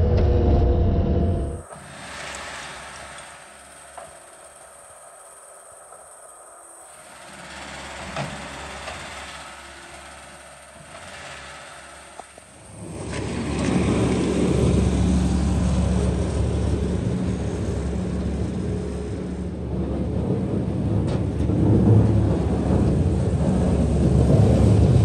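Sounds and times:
loader diesel engine running: 7.1s - 25.0s.

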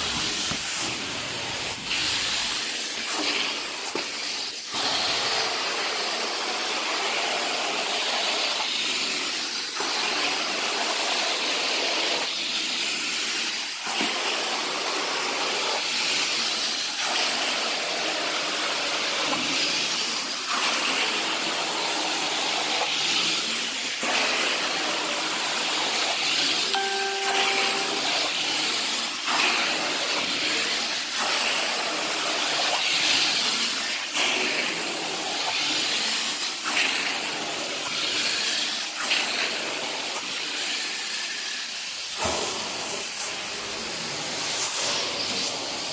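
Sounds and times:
short pitched tone: 26.7s - 28.5s.

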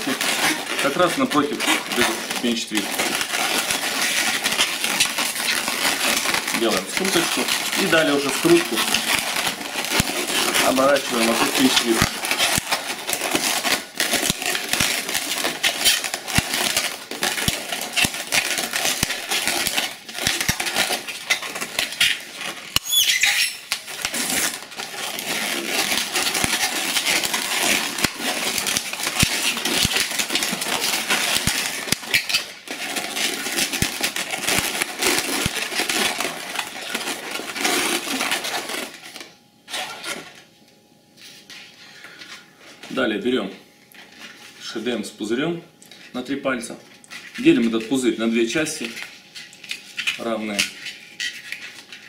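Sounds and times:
balloons rubbing and squeaking: 0.0s - 40.4s
balloon high wavering squeal: 21.1s - 24.5s, 30.8s - 32.6s.

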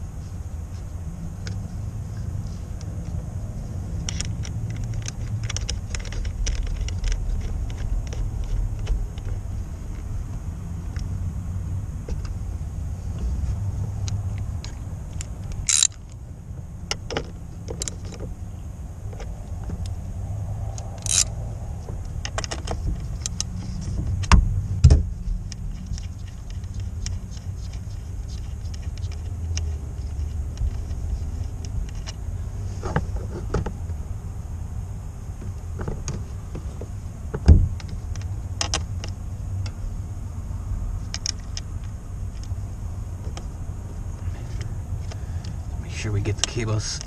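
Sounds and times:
steady low rumble: 0.0s - 47.0s
ratchet wrench tightening nut: 15.2s - 16.1s, 20.8s - 21.3s, 25.4s - 32.2s.

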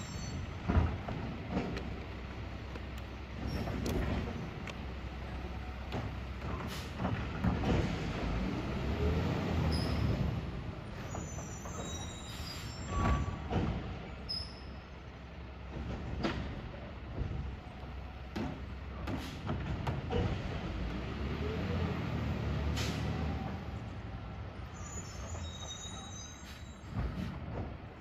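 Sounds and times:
clanks and knocks: 0.6s - 2.8s, 18.3s - 20.5s
brief squeaks: 11.0s - 13.5s, 24.7s - 27.4s.

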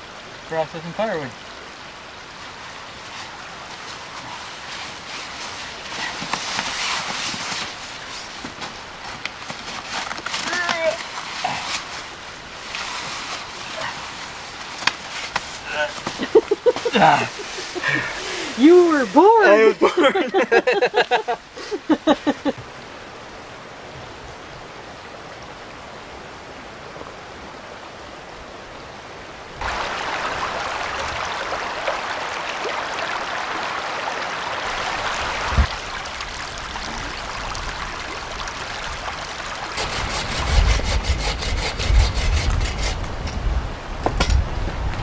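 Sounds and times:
brook rushing: 29.6s - 41.2s.

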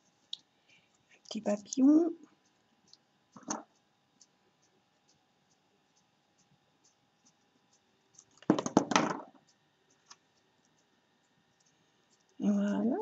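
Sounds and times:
light handling ticks: 0.0s - 8.6s, 9.4s - 13.0s
paper rustling and small knocks: 8.2s - 10.2s.

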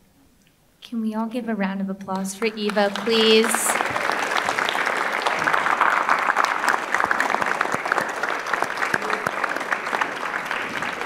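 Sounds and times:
audience applauding: 2.2s - 11.0s.

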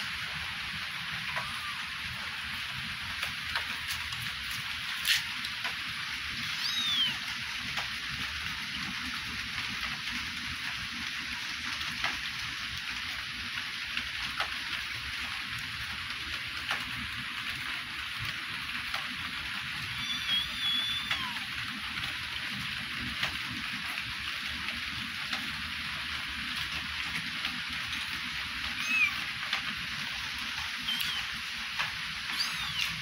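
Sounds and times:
steady rain-like hiss: 0.0s - 33.0s
kitten mewing: 1.3s - 1.9s, 6.4s - 7.2s, 20.0s - 21.5s, 28.7s - 29.3s, 30.8s - 31.4s, 32.3s - 33.0s.

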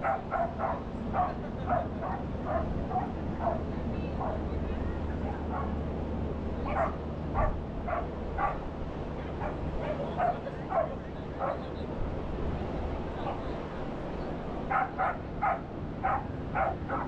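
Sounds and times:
dog barking: 0.0s - 3.7s, 5.5s - 5.8s, 6.7s - 8.6s, 9.4s - 11.7s, 14.7s - 17.0s
ocean surf rushing: 5.0s - 17.0s.

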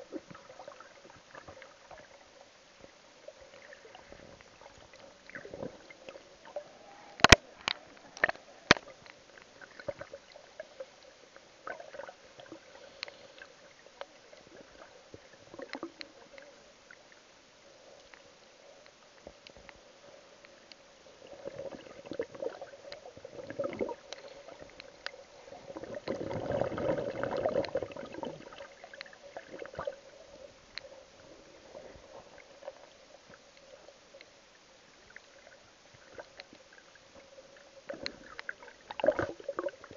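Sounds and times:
faint steady hum: 0.0s - 39.9s
water gurgling underwater: 21.2s - 30.6s, 37.6s - 39.9s.

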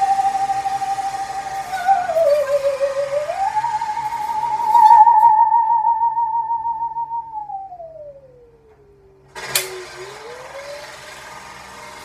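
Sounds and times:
construction noise: 0.0s - 5.2s, 8.6s - 12.0s
singing saw with vibrato: 0.0s - 11.3s.

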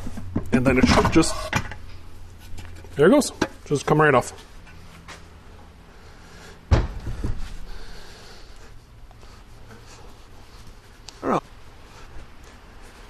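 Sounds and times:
heavy metal thump on workbench: 6.7s - 7.4s.

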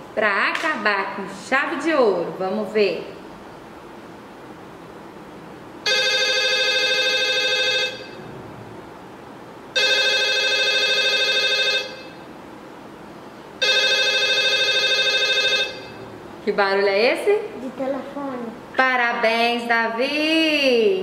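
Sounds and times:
warbling electronic phone ring: 5.9s - 8.3s, 9.8s - 12.2s, 13.6s - 16.0s.

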